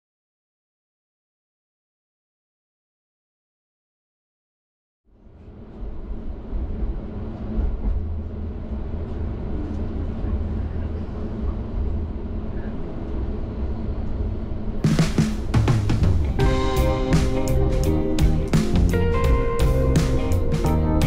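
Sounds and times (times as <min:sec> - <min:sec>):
tram rumbling: 0:05.1 - 0:21.0.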